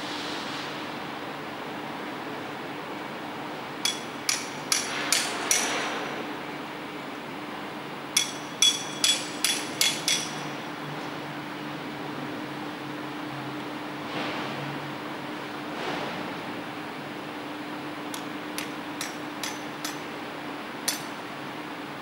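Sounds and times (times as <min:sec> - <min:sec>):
hammer striking metal: 0:03.8 - 0:05.9, 0:08.2 - 0:10.5, 0:18.1 - 0:20.1, 0:20.9 - 0:21.1.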